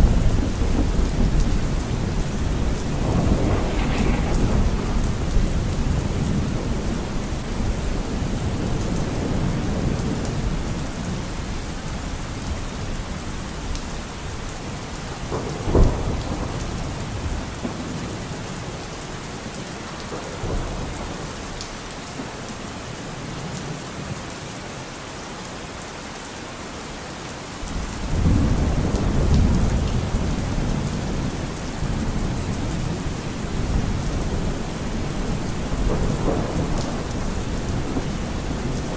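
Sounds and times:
low rolling thunder: 0.0s - 12.8s, 14.6s - 18.8s, 27.7s - 38.9s
steady rain: 0.0s - 38.9s
sharp thunder crack: 0.2s - 7.0s.

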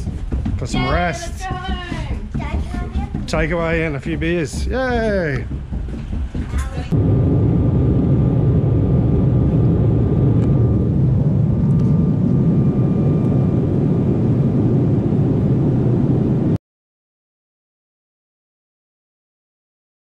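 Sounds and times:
jet engines and airflow rushing: 3.0s - 16.6s.

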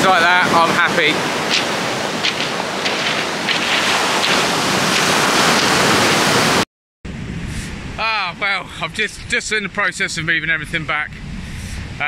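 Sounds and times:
surf breaking on beach: 0.0s - 6.6s
wind on microphone: 0.2s - 12.0s.

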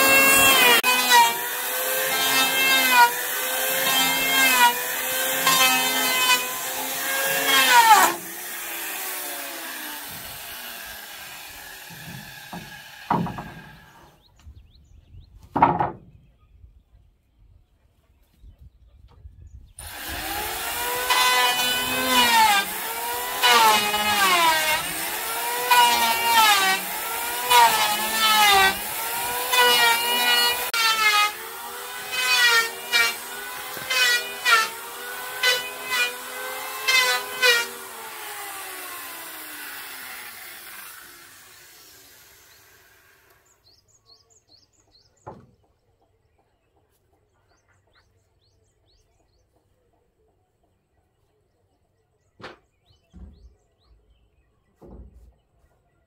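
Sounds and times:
electric planer shaving wood: 0.0s - 14.0s, 19.8s - 43.4s
short knocks: 15.4s - 16.2s.

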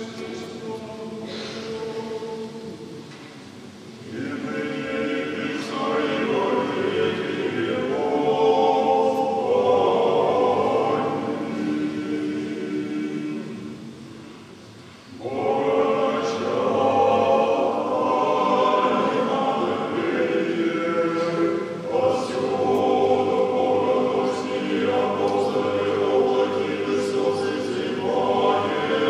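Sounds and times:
male choir chanting: 0.0s - 3.1s, 4.0s - 14.0s, 15.1s - 29.0s.

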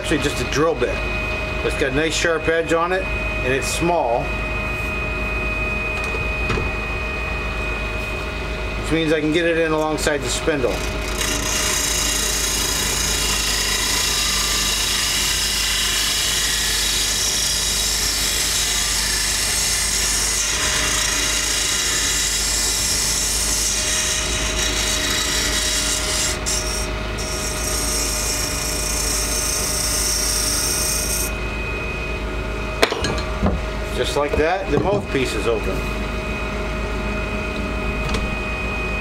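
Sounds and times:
lathe motor hum: 8.6s - 31.4s.

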